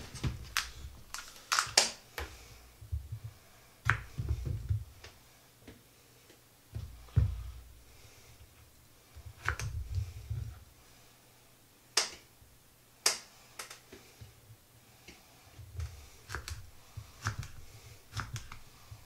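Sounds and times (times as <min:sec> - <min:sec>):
knife slicing pepper on board: 0:16.2 - 0:18.6.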